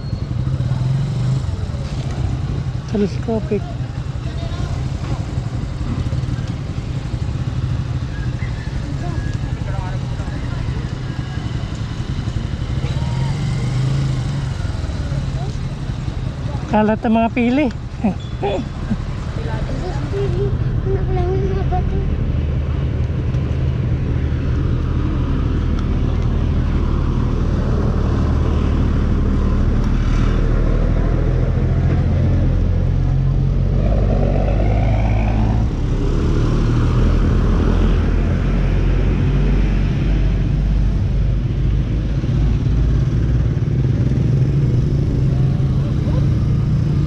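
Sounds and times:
engine rising in pitch: 27.8 - 39.5.

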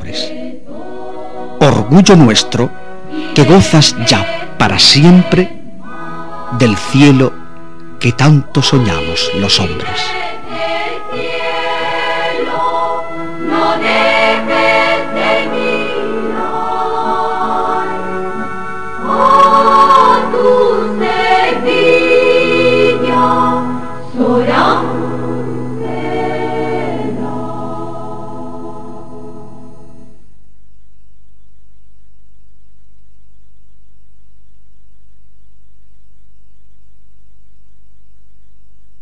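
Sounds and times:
choir singing: 0.0 - 30.1.

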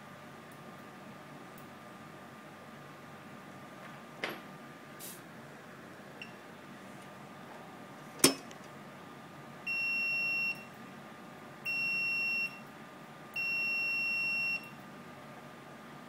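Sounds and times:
multimeter continuity beeps: 9.7 - 10.7, 11.7 - 12.7, 13.4 - 14.8.

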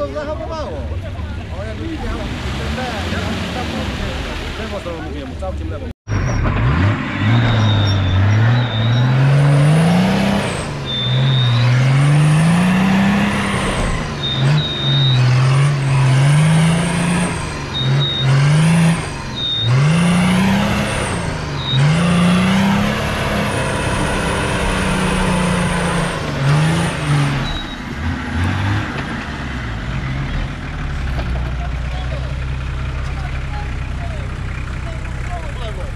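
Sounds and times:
engine revving: 1.6 - 5.2, 5.8 - 35.9
short high squeals: 7.2 - 12.1, 12.8 - 15.6, 17.2 - 18.7, 19.3 - 22.8, 27.2 - 27.9.

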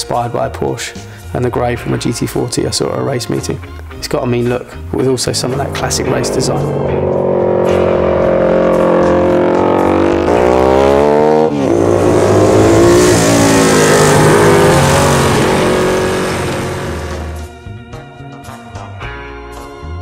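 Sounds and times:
motorcycle engine revving: 5.2 - 17.5.

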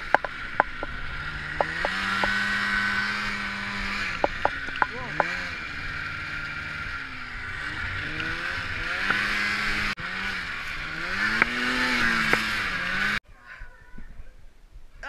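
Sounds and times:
sharp ticks: 0.0 - 2.4, 4.1 - 5.4
snowmobile engine revving: 0.0 - 13.2.

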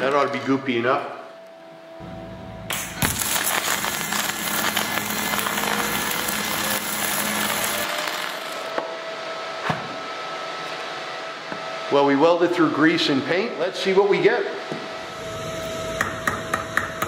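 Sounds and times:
steady hum: 0.7 - 17.0
welding arc crackling: 2.7 - 8.7.

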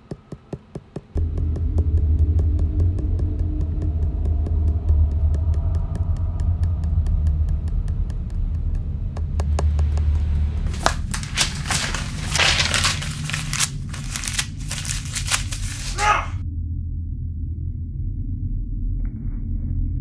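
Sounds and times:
steady low hum: 1.0 - 20.0
rustling handling noise: 10.6 - 16.4.

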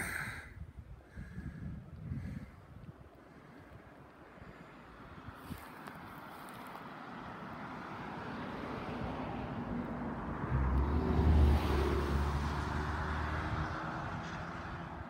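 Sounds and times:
vehicle driving past: 7.1 - 15.0.

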